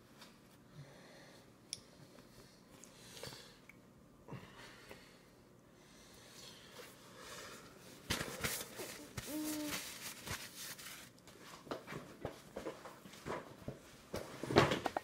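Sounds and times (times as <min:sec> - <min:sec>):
rustling: 0:08.0 - 0:11.6
toddler whining: 0:09.0 - 0:09.8.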